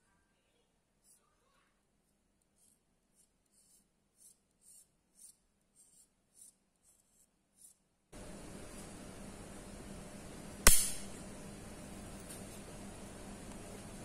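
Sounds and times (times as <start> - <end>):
steady hiss with low hum: 6.4 - 14.0.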